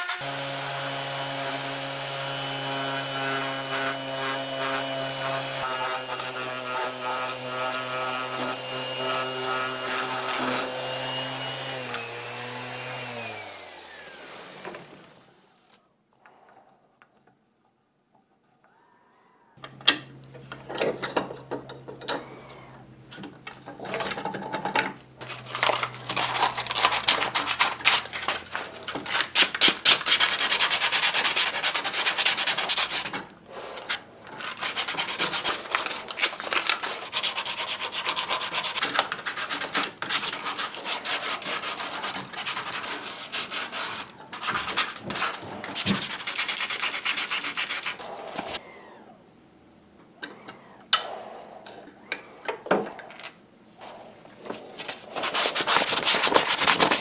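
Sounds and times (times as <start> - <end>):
sandpaper scratching on wood: 25.5 - 48.6, 54.8 - 57.0.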